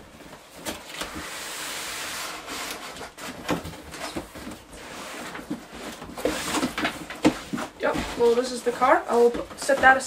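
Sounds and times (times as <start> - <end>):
cardboard sliding and scraping: 0.1 - 10.0
cardboard knocks and rustles: 3.1 - 10.0.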